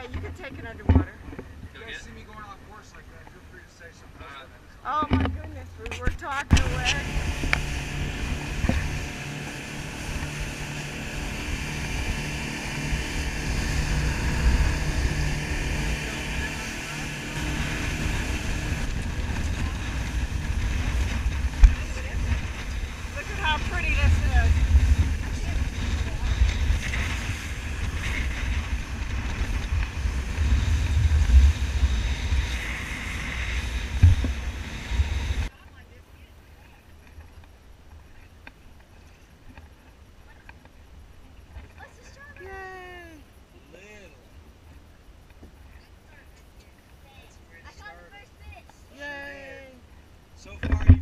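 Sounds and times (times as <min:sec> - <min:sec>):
outboard motors droning: 0:00.0 - 0:51.0
wind buffeting microphone: 0:06.0 - 0:35.5.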